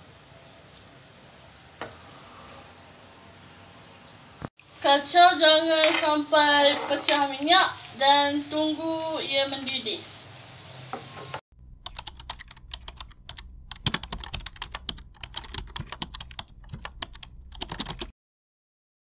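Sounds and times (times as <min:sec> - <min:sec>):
keyboard typing clicks: 0:11.8 - 0:18.1.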